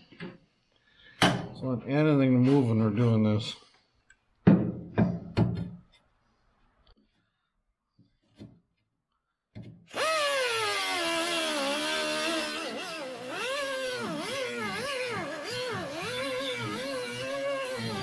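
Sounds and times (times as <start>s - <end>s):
air cut-off wheel cutting steel: 9.9s - 18.0s.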